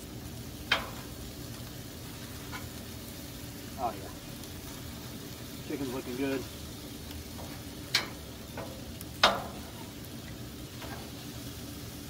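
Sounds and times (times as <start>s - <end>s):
chicken sizzling on a griddle: 0.0s - 12.0s
tongs clacking on steel: 0.6s - 1.1s, 7.4s - 9.9s.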